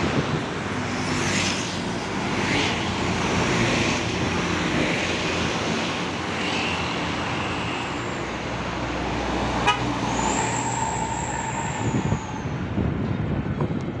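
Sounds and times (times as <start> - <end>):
roadside traffic: 0.0 - 14.0
vehicle horn: 9.6 - 10.0.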